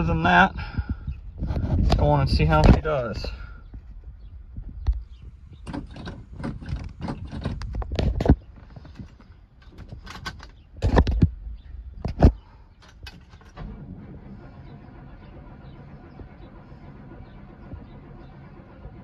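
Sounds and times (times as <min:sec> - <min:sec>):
starter cranking engine slowly: 0:12.9 - 0:19.0.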